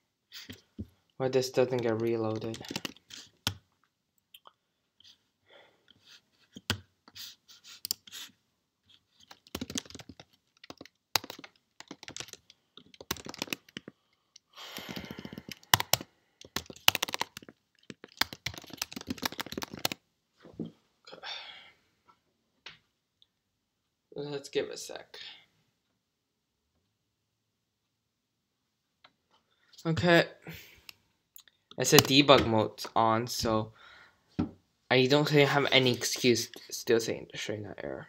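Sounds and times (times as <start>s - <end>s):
typing on computer keyboard: 1.7s - 3.6s, 9.2s - 14.0s, 14.6s - 20.0s.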